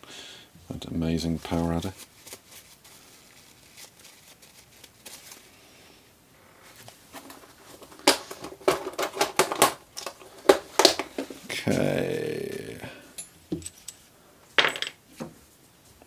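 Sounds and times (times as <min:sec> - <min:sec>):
tissue rustling: 0:01.4 - 0:05.8.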